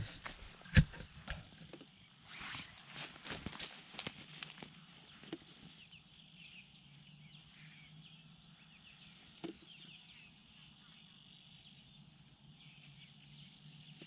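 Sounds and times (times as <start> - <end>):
branches and leaves rustling: 0.0 - 7.1
hillside ambience: 0.0 - 14.0.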